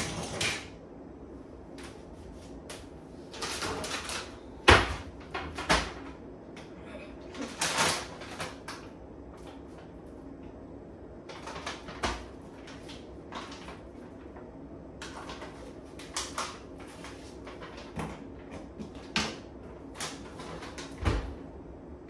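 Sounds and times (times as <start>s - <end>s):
kitchen items knocking and clinking: 3.3s - 6.2s
dishwasher door shutting: 20.9s - 21.4s.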